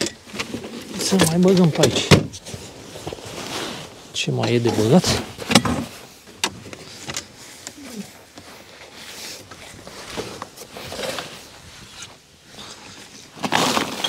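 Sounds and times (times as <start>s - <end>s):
knocks and clatter of gear: 0.0s - 3.3s
rustling: 0.0s - 14.0s.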